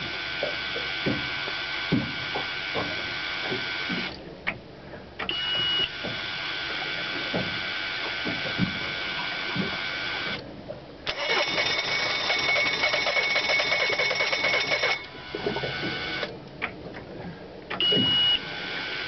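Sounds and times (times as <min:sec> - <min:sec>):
outboard motor running: 0:00.0 - 0:19.0
high steady beep: 0:17.8 - 0:18.4.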